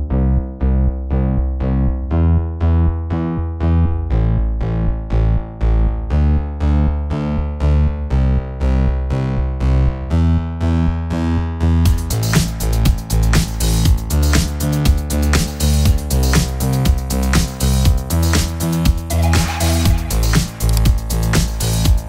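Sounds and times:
deep bass: 0:00.0 - 0:22.0
synthesizer pulsing notes: 0:18.1 - 0:22.0.

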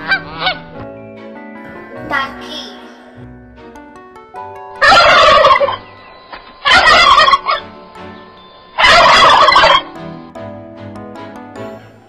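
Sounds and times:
turkey gobbling: 0:00.0 - 0:00.6, 0:04.8 - 0:07.7, 0:08.8 - 0:09.9
soft background music: 0:00.0 - 0:12.0.

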